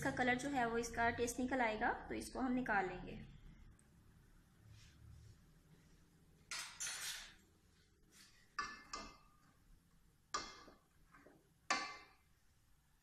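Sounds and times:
metal spoon scraping pot: 6.5s - 7.4s.

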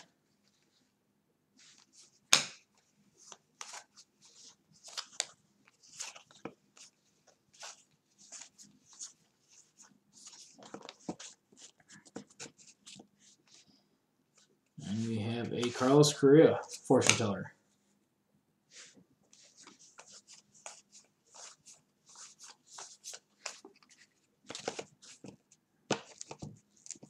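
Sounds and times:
cards being flipped: 1.6s - 13.1s, 15.0s - 16.0s, 16.6s - 17.3s, 19.4s - 27.0s.

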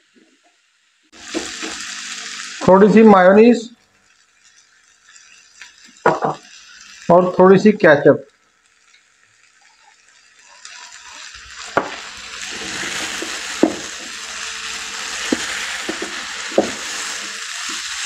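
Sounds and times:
food sizzling in a frying pan: 0.0s - 18.0s
spoon knocking against pan: 13.2s - 14.1s.

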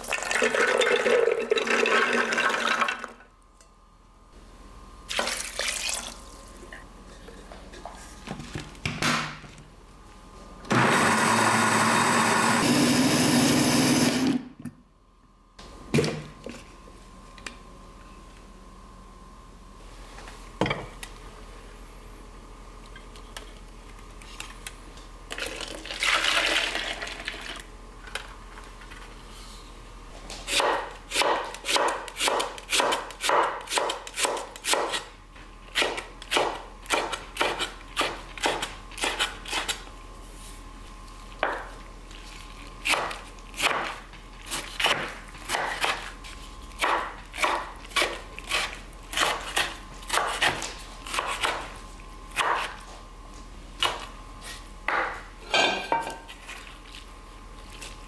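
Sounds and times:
knife chopping on wooden board: 30.5s - 35.0s, 42.9s - 46.0s, 52.4s - 52.8s.

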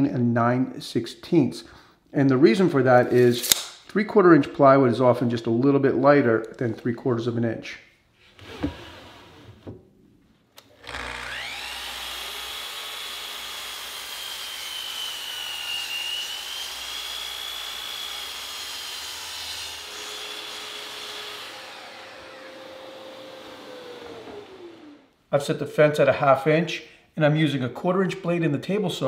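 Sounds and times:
miter saw cutting plywood: 10.8s - 25.1s.

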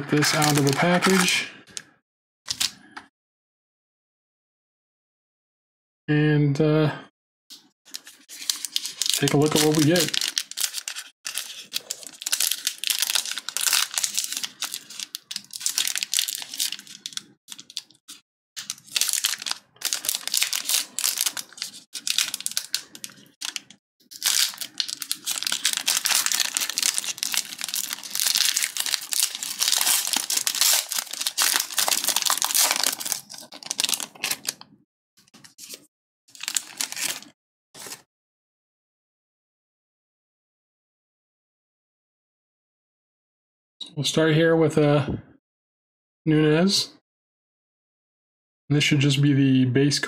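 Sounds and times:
foil wrapper crinkling and tearing: 0.0s - 1.4s, 2.5s - 2.8s, 7.9s - 34.6s, 35.3s - 38.0s.

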